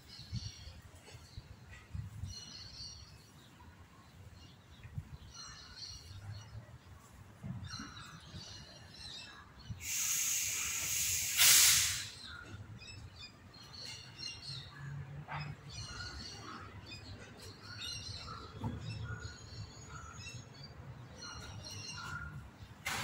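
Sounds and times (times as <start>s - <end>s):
birds chirping: 0.0s - 22.9s
loud hiss: 9.8s - 12.3s.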